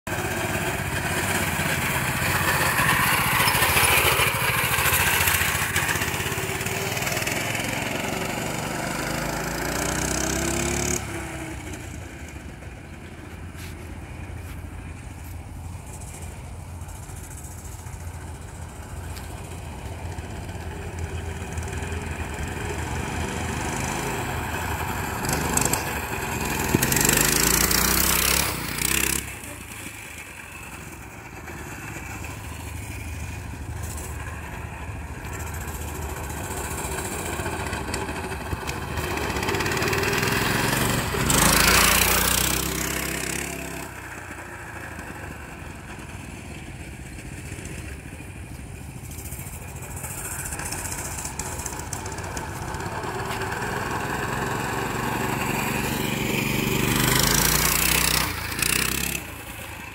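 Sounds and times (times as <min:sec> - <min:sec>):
minibike engine revving: 0:00.1 - 0:13.3, 0:15.8 - 0:59.9.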